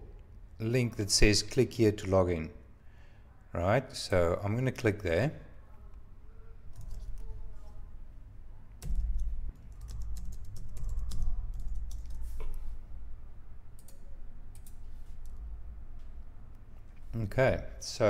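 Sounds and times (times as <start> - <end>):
typing on computer keyboard: 8.8 - 12.6, 13.8 - 15.4.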